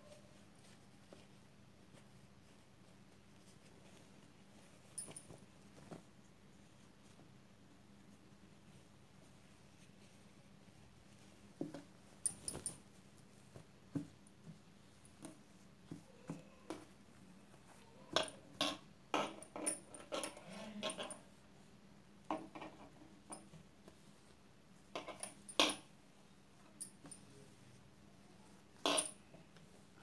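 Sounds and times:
fabric rustling: 0:08.4 - 0:17.9.

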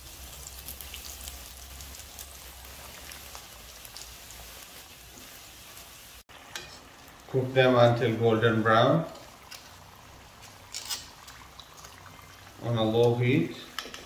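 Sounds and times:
food sizzling in hot oil: 0:00.0 - 0:14.0.

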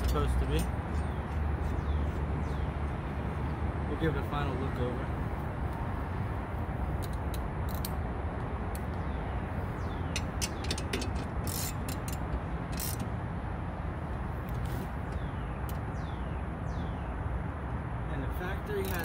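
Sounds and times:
clicks and taps of tools: 0:10.1 - 0:12.4.

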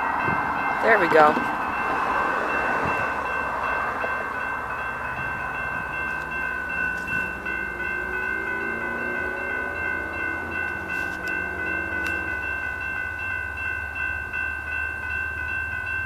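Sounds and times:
crossing warning bell ringing: 0:00.0 - 0:16.0
distant locomotive horn: 0:05.3 - 0:12.9.

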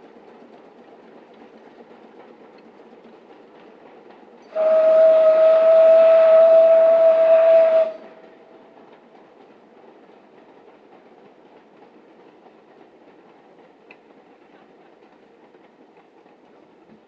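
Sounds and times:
train running noise: 0:00.0 - 0:17.0
steam locomotive whistle: 0:04.5 - 0:08.2.

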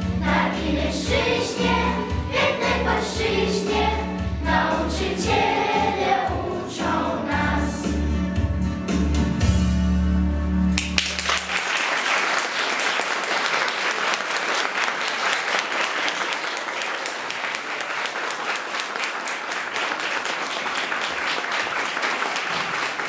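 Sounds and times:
audience applause: 0:10.8 - 0:23.0.

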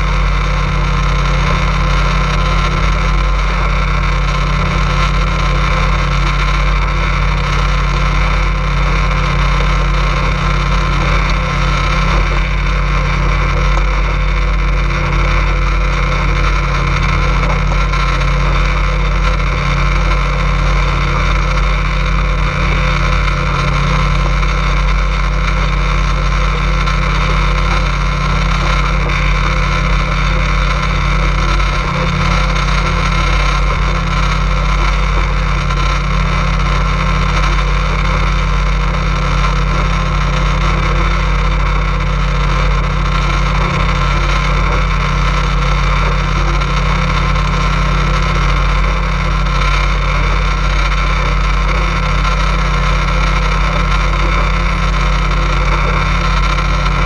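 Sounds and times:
motorboat engine droning: 0:00.0 - 0:57.0.

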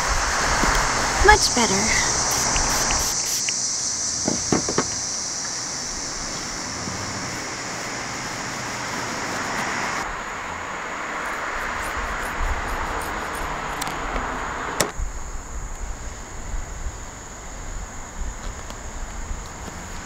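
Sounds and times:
high insect drone: 0:00.0 - 0:20.0
rushing noise of distant traffic: 0:00.0 - 0:20.0
sharp clicks: 0:02.2 - 0:03.7.

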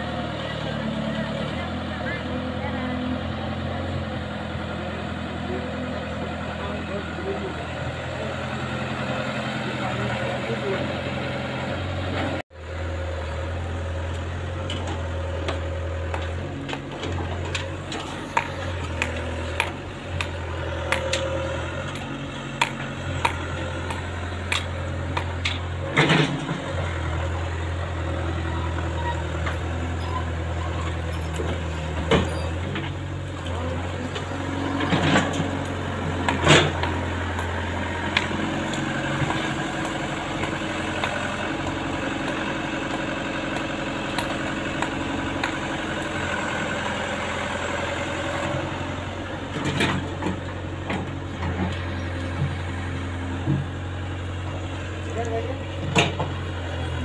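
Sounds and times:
excavator diesel engine running: 0:00.0 - 0:57.0
sharp knocks and clanks: 0:14.7 - 0:26.6.

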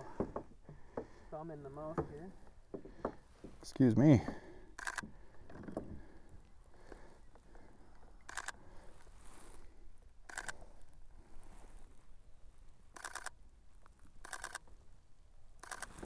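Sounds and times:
camera shutter rapid clicks: 0:04.8 - 0:05.1, 0:08.3 - 0:08.6, 0:10.3 - 0:10.6, 0:13.0 - 0:13.4, 0:14.2 - 0:14.6, 0:15.6 - 0:16.0.

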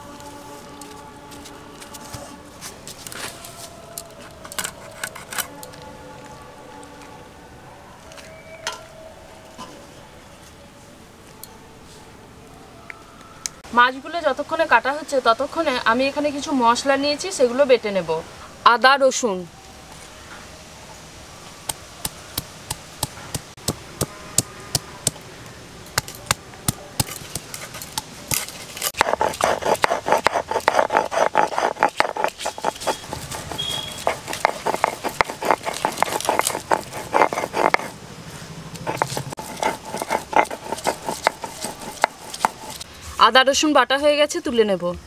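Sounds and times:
stone roller grinding on slab: 0:04.5 - 0:05.5, 0:27.0 - 0:38.0, 0:38.8 - 0:42.8.

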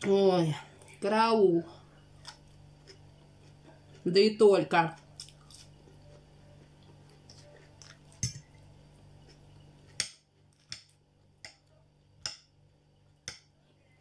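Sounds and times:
chewing food: 0:02.1 - 0:04.2, 0:04.9 - 0:11.0.

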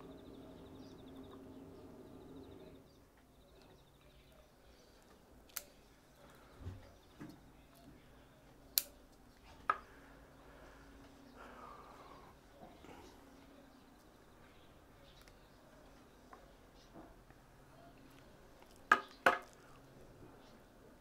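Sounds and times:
pruning scissors snipping roots: 0:05.5 - 0:05.8, 0:08.7 - 0:09.0.

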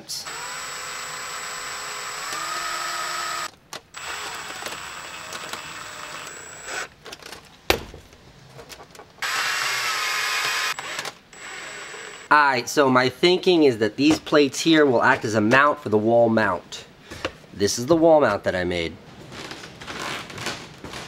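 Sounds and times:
electric drill boring through metal: 0:00.2 - 0:06.9, 0:09.2 - 0:12.3.

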